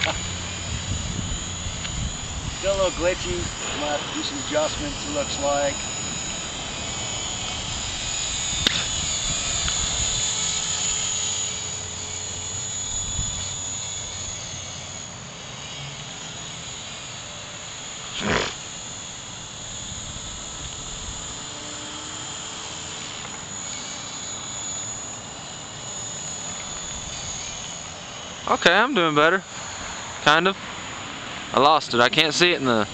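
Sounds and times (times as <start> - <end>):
wind rumbling on microphone: 0.0 - 10.8, 12.7 - 14.3
rc helicopter motor whine: 0.0 - 32.9.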